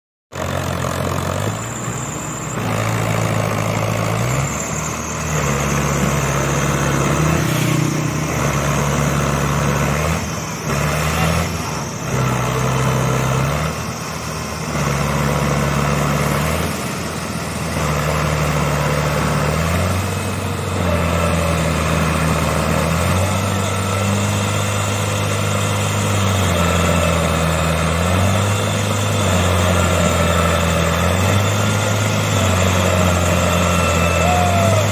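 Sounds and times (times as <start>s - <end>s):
tractor diesel engine labouring: 0.3s - 34.9s.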